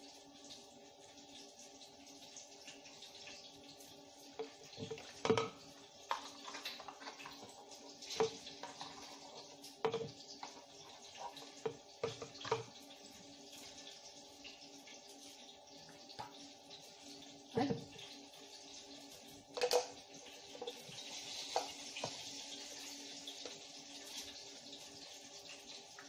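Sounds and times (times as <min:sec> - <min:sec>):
liquid pouring: 0:00.0 - 0:26.0.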